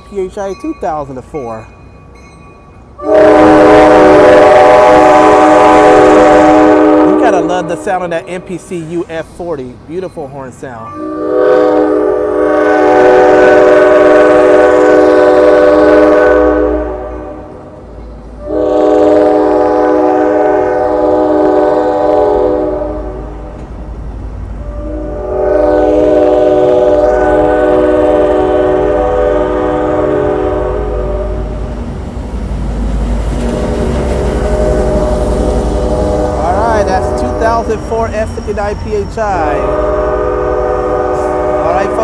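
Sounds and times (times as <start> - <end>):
rumble of passenger cars rolling: 0.0 - 11.0, 16.8 - 42.0
train horn blasts: 3.0 - 8.0, 10.9 - 17.6, 18.4 - 23.4, 24.6 - 31.6, 34.2 - 38.2, 39.4 - 42.0.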